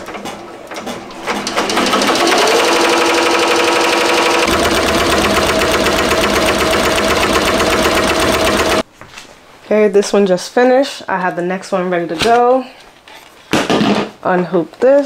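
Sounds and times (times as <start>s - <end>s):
embroidery machine stitching: 0.0s - 8.8s.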